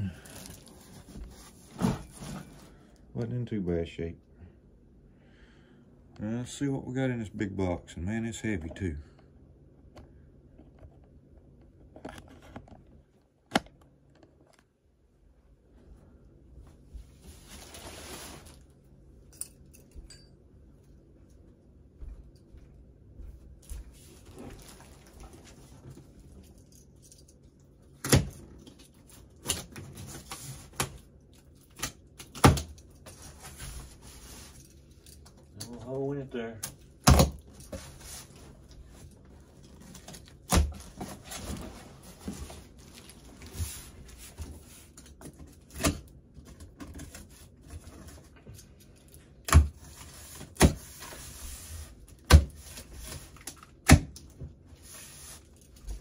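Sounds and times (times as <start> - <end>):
cardboard scraping and slitting: 0.5 - 2.7.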